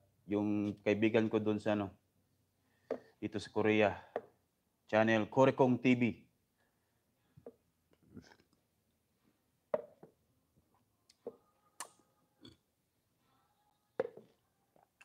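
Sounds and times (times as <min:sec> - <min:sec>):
paper cup tapping on plastic tray: 0:09.7 - 0:10.1.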